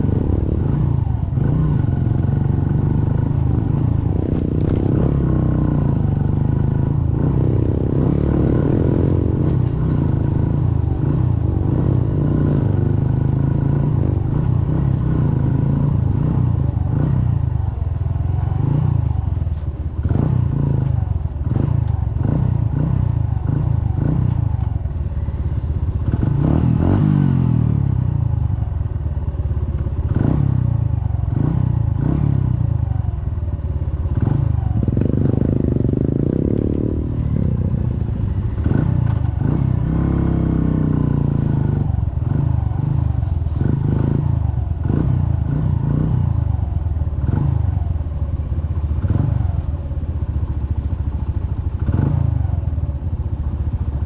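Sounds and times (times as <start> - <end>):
motorcycle engine running: 0.0 - 54.0
motorcycle clattering over bumps: 1.8 - 5.7.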